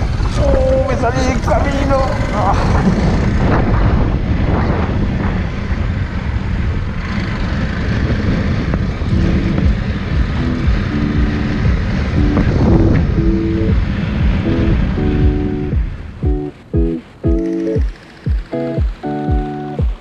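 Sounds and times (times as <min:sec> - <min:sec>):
motorcycle engine running: 0:00.0 - 0:20.0
wind rushing over microphone: 0:00.0 - 0:20.0
music with held notes: 0:09.2 - 0:20.0.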